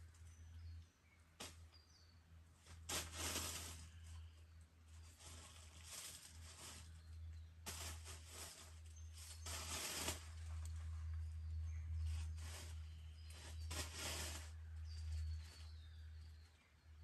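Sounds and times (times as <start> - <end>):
hissing rustling bursts: 2.7 - 4.0, 7.7 - 10.5, 12.2 - 14.6.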